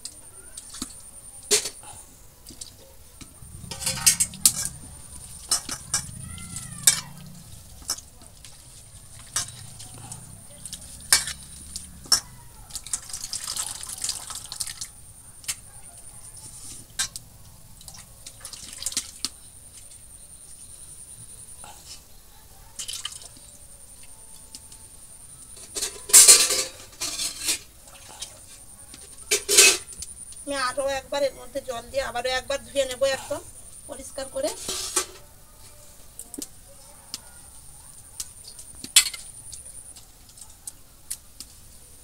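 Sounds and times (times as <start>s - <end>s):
hands splashing leaves in water: 12.7s - 15.0s.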